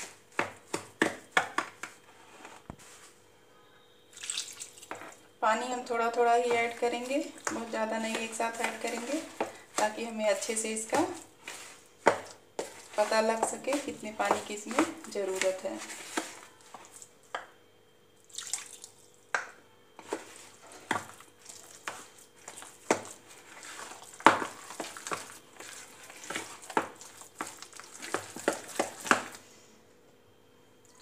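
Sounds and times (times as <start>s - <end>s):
spoon scraping plastic bowl: 6.5s - 17.0s.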